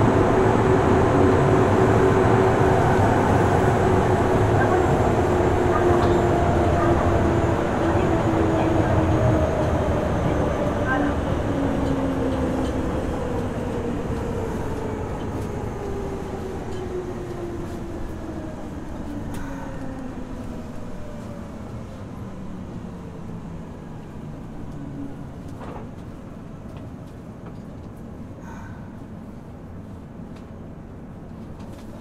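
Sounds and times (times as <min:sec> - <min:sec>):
train running noise: 0:00.0 - 0:32.0.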